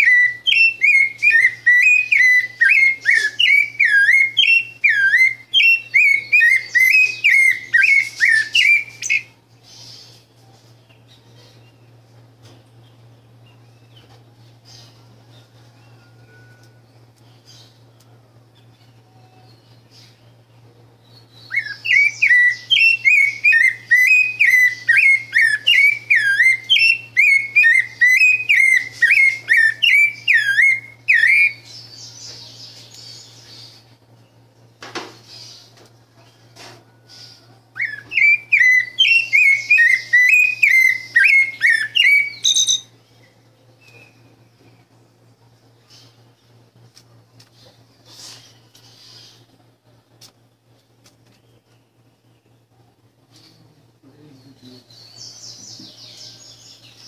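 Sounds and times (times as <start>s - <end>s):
thrush singing whistled song: 0.0s - 9.3s, 21.1s - 32.1s, 37.0s - 43.2s.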